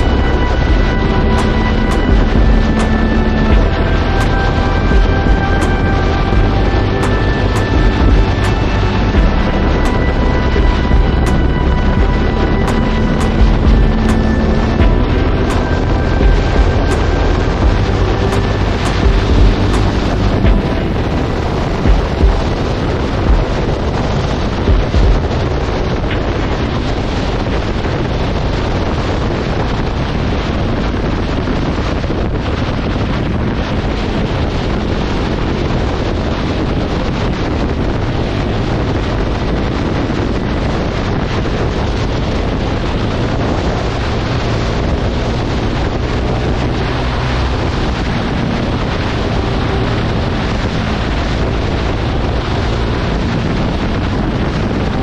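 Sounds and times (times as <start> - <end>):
motorcycle engine running: 0.0 - 11.4, 12.0 - 26.3
low wind thumps: 0.0 - 55.0
wind buffeting microphone: 0.0 - 55.0.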